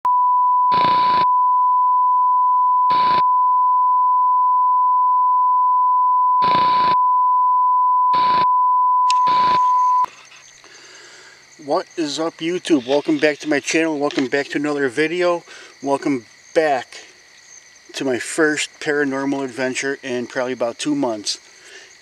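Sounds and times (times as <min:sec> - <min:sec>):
loud steady test tone: 0:09.1 - 0:10.1
tv static hiss: 0:11.6 - 0:15.3.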